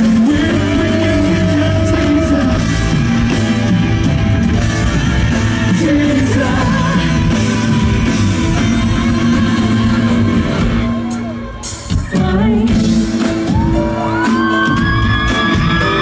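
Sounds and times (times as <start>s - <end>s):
man singing into microphone: 0.0s - 3.0s, 5.6s - 7.7s
drums: 0.0s - 16.0s
rock band playing: 0.0s - 16.0s.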